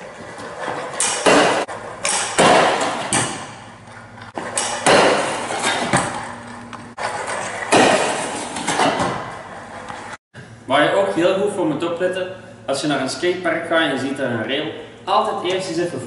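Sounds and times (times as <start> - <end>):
scooter wheels rolling on concrete: 0.0 - 2.0, 5.2 - 10.2
scooter deck scraping along rail: 0.0 - 2.1, 6.9 - 10.2
scooter clacks and bangs on rail: 4.4 - 6.2, 7.2 - 9.4.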